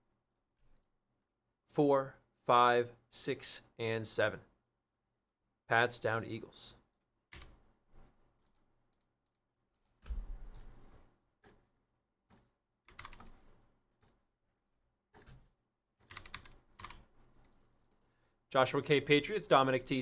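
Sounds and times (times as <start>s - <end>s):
faint keyboard typing: 0.3s - 1.0s, 6.8s - 18.2s.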